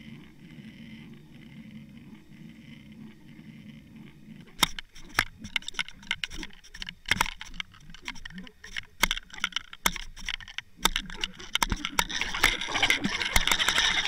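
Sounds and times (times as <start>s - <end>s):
sharp clicks and knocks: 4.4s - 14.0s.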